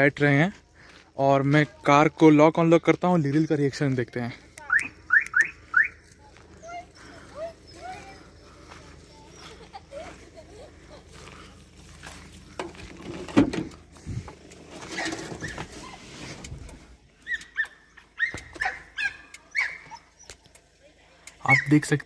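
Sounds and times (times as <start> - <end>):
dog whining: 6.6 - 8.4, 14.9 - 16.2
car door shutting: 12.6 - 13.8.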